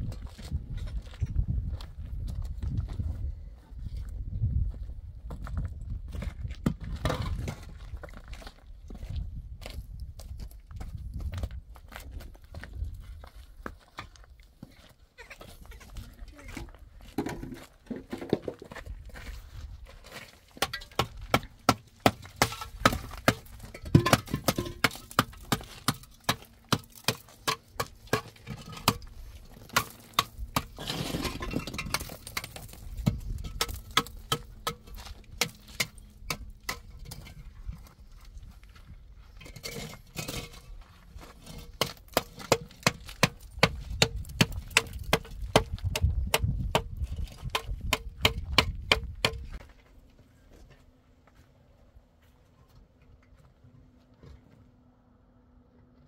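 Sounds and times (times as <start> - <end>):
metal tool striking concrete block: 20.6 - 37.3, 41.5 - 49.5.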